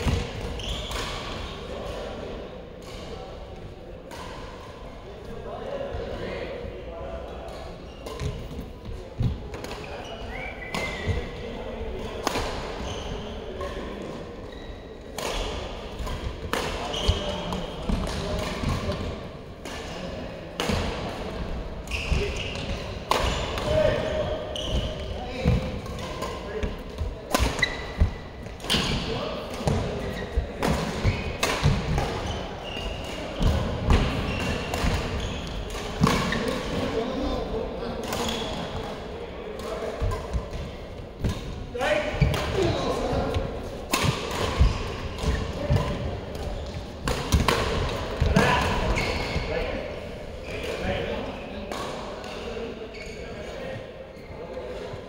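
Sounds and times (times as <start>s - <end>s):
sneaker squeaks: 0.0s - 1.5s, 7.6s - 12.1s, 12.7s - 19.0s, 21.8s - 26.7s, 27.3s - 38.9s, 40.0s - 54.7s
racket hitting shuttlecock: 15.1s - 21.1s, 21.8s - 36.8s, 42.2s - 49.4s.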